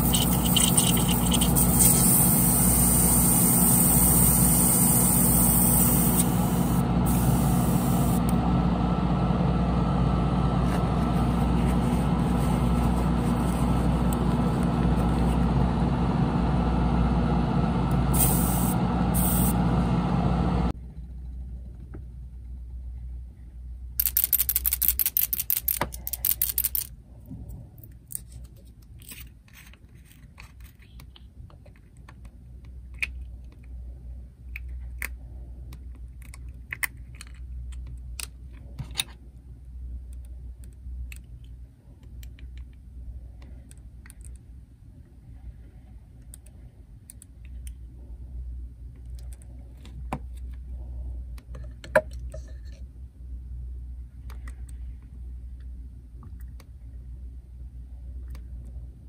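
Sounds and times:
machine hum: 0.0 - 21.5.

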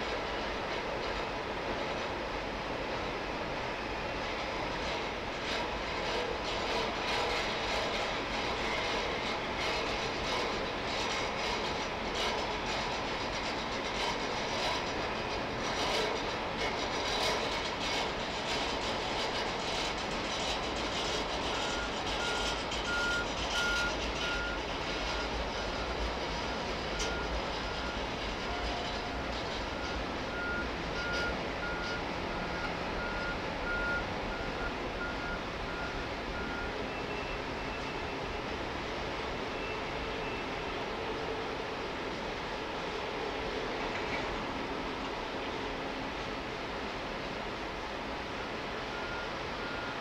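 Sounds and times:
freight train rumbling past: 0.0 - 50.0
train wheel clicks: 4.7 - 30.3
reversing alarm beeping: 21.4 - 38.1, 48.9 - 50.0.

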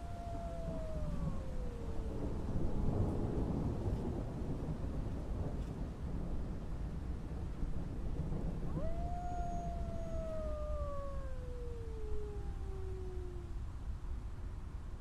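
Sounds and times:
wolf howling: 0.0 - 3.5, 8.7 - 13.7.

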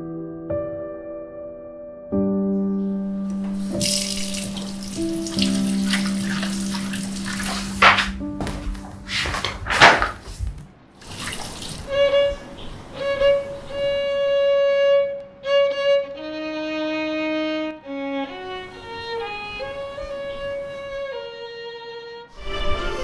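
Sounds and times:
splashing water: 3.3 - 8.2, 11.0 - 13.7
violin playing slow melody: 11.8 - 23.0.

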